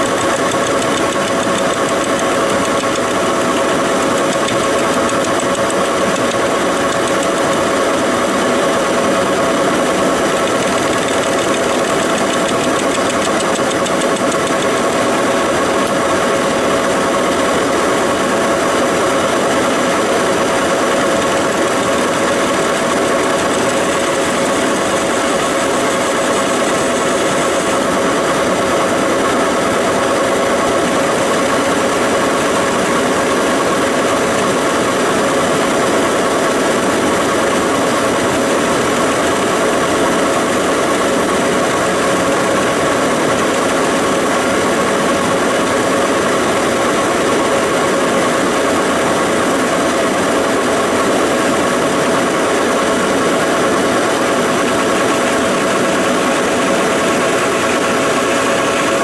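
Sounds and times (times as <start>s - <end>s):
turning tool cutting metal: 0.0s - 8.4s, 10.2s - 15.1s, 20.7s - 28.0s.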